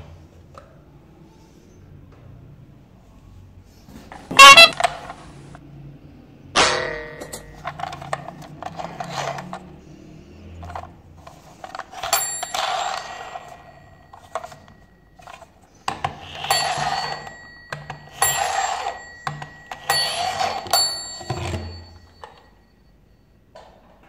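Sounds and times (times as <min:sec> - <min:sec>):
toy electronic sound effects: 0:04.3 - 0:05.1
high ringing tones: 0:12.0 - 0:23.5.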